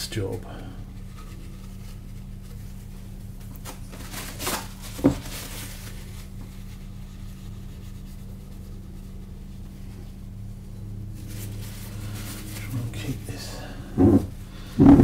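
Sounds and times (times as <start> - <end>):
steady low hum: 0.0 - 15.0
paper towel tearing: 1.3 - 6.7, 11.2 - 14.2.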